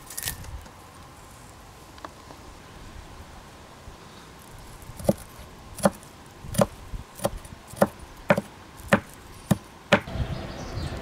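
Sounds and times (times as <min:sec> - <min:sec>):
blade chopping wood: 0:05.0 - 0:10.1.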